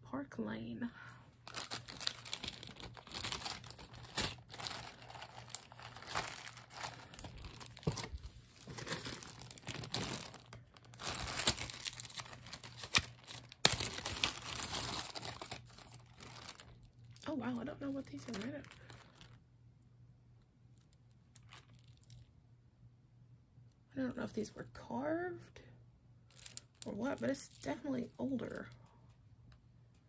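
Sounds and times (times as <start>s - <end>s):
plastic bags crinkling: 1.4s - 19.4s, 21.3s - 22.3s, 26.3s - 27.8s.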